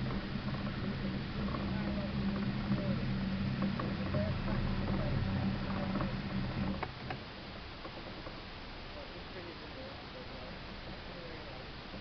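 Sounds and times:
electric motor humming: 0.0 - 7.2.

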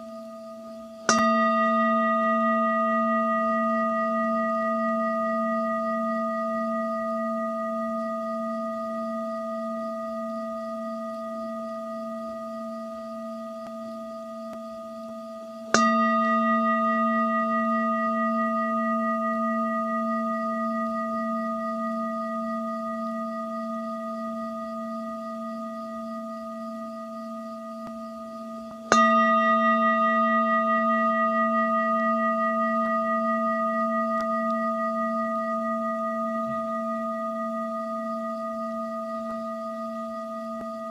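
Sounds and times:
singing bowl ringing: 0.0 - 40.9.

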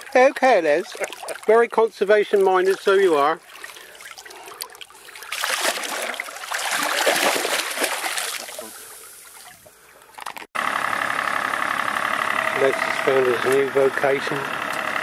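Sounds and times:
water splashing at boat side: 0.0 - 9.8
boat engine idling with whine: 10.6 - 15.0.

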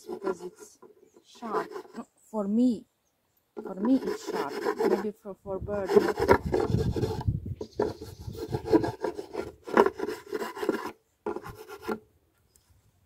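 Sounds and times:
file scraping on wood: 0.0 - 2.1, 3.6 - 5.1, 5.8 - 12.0.

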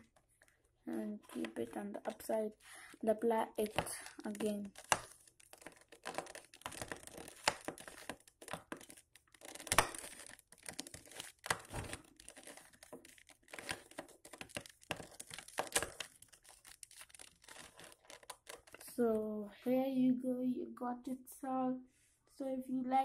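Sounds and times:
plastic puzzle cube clicking: 3.6 - 18.8.

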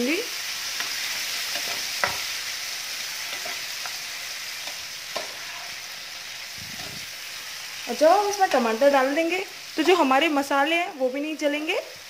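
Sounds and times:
vegetables sizzling in hot oil: 0.0 - 12.0
metal spatula stirring: 0.8 - 2.3, 4.6 - 5.8.

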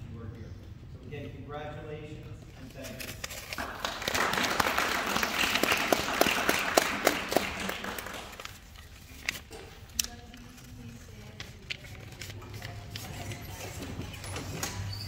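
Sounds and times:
audience applauding: 3.6 - 8.7.

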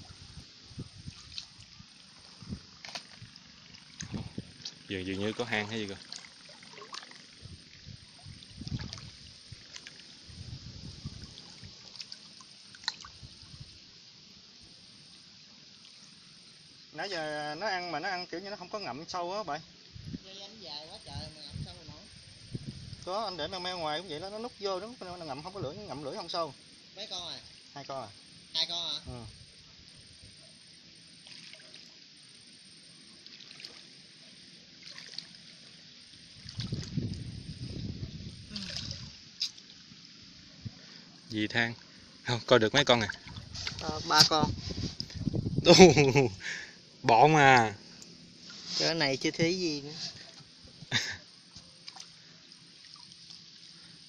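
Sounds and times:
water splashing: 0.0 - 13.4, 31.2 - 32.0, 33.1 - 40.0, 42.4 - 45.1, 51.0 - 54.0
faint watery hiss: 0.0 - 54.0
water dribbling: 0.9 - 13.6, 33.2 - 39.9, 42.5 - 44.3, 51.8 - 54.0
hand sloshing in wet mud: 1.0 - 7.4, 8.4 - 10.2, 31.2 - 31.9, 33.2 - 34.0, 34.8 - 35.6, 36.4 - 37.3, 38.5 - 39.6, 42.8 - 44.0
hands scooping mud in water: 33.2 - 34.0, 34.8 - 35.5.

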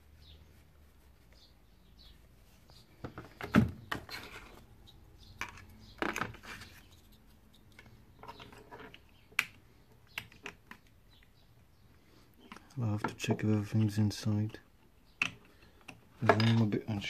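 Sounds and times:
knocks and rustles of card and plastic: 2.8 - 4.7, 5.4 - 6.9.

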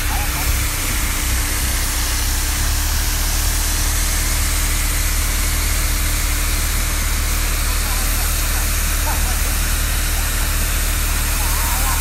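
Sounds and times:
heavy engine droning: 0.0 - 12.0.

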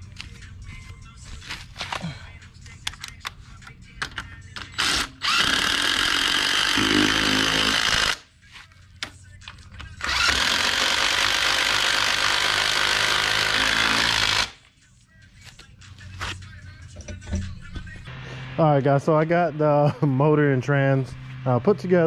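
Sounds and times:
power tool running: 4.8 - 8.2, 10.0 - 14.6.

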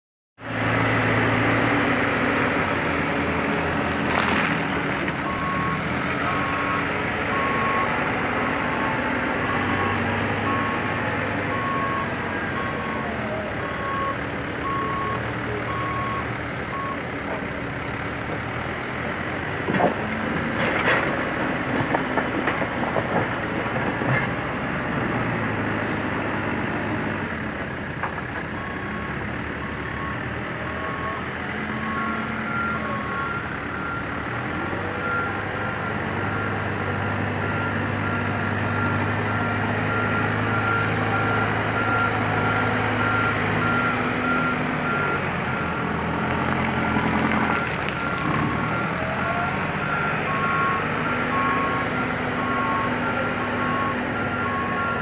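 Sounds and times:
diesel engine running: 0.4 - 55.0
reversing alarm beeping: 5.3 - 17.0, 35.0 - 45.9, 47.5 - 55.0.

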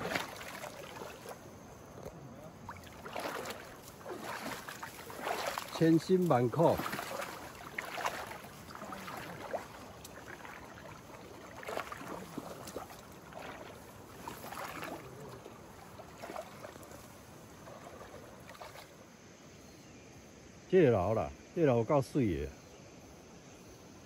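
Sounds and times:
water sloshing around wading legs: 0.0 - 19.1
water splashes: 0.0 - 19.1.

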